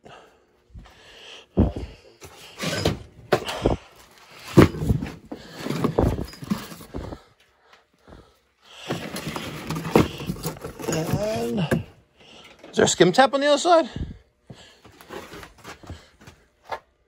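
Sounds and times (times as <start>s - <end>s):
tools and pipe fittings clunking: 1.6s - 7.2s, 8.8s - 13.0s.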